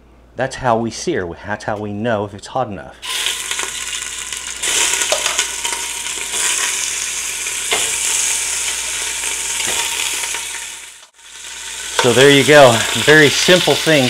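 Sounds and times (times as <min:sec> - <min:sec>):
meat sizzling in hot oil: 0:03.0 - 0:14.0.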